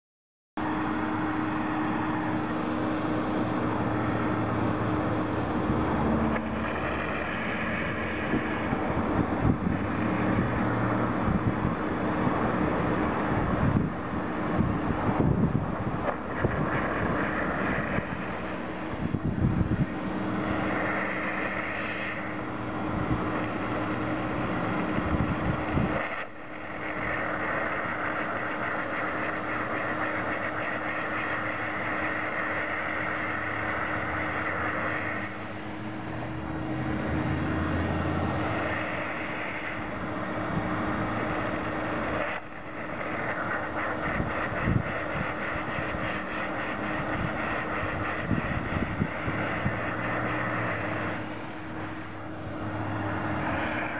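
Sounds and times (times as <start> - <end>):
hot water and steam spray hissing: 0.6 - 53.9
machine humming: 0.6 - 53.9.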